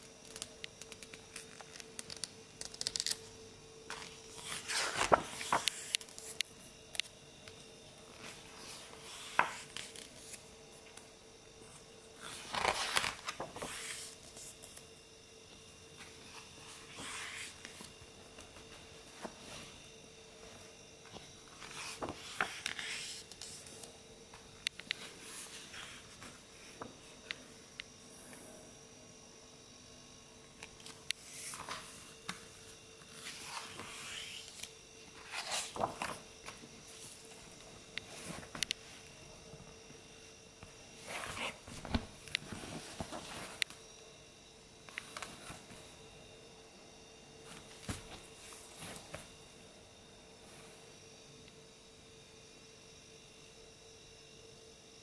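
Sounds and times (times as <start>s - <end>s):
faint steady hum: 0.0s - 55.0s
book pages rustling: 3.9s - 6.5s, 8.1s - 11.0s, 12.1s - 14.8s, 16.0s - 19.8s, 20.4s - 23.9s, 31.2s - 38.8s, 41.0s - 43.8s, 47.5s - 49.3s.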